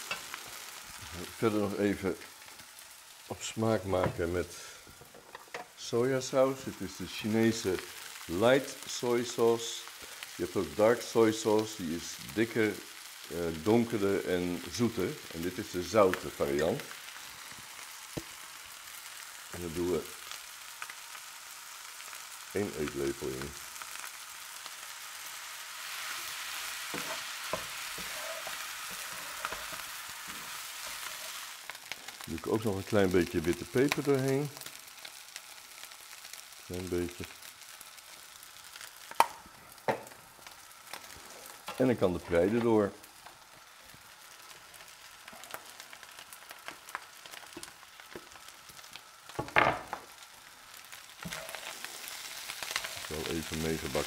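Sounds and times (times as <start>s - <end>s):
rice sizzling in frying pan: 0.0s - 54.0s
spatula scraping and tapping pan: 26.9s - 31.4s.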